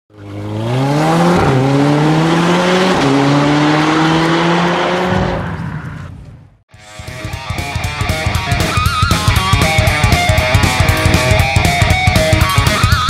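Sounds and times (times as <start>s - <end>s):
car engine accelerating: 0.1s - 6.4s.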